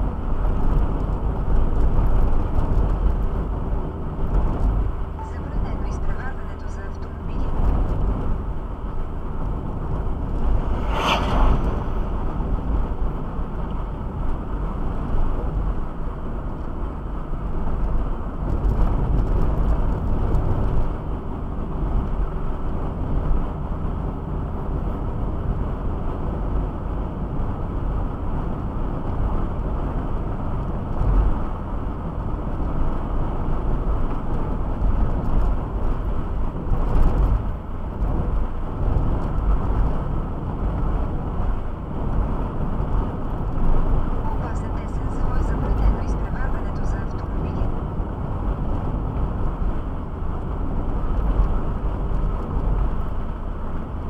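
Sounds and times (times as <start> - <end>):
vehicle rumble: 0.0 - 54.0
brief high-pitched sound: 44.2 - 45.2.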